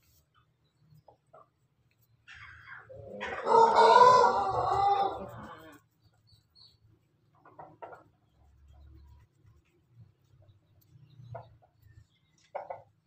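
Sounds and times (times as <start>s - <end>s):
rooster crowing: 3.1s - 5.8s.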